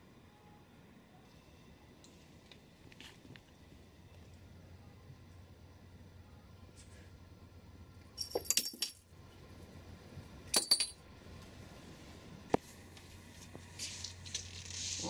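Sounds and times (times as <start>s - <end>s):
small bell jingling: 8.2s - 9.0s.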